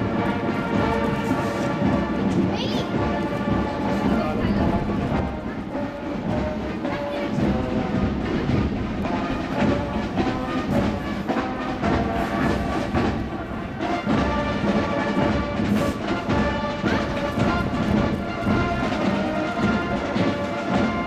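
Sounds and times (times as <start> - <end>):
drum beats: 0.0 - 21.0
marching band music: 0.0 - 21.0.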